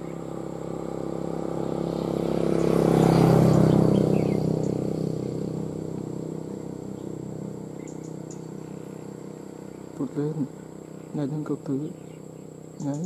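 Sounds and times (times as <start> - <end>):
passing vehicle engine: 0.0 - 13.0
faint bird chirps: 6.9 - 13.0.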